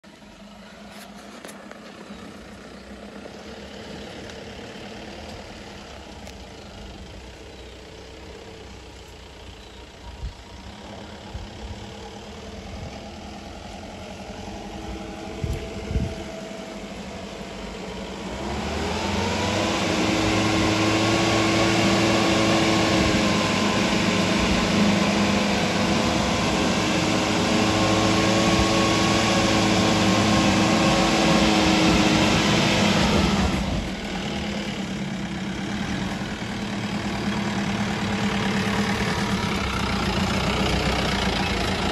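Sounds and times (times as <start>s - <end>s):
pickup truck engine revving: 10.6s - 41.9s.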